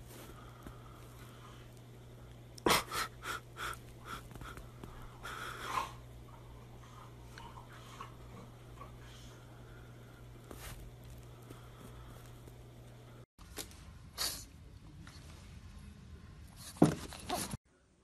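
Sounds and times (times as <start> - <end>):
dog snorting and wheezing: 2.7 - 9.5.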